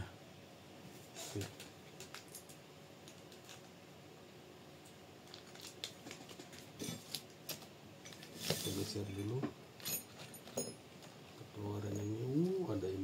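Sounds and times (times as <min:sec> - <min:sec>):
plastic bags rustling: 0:05.2 - 0:09.2.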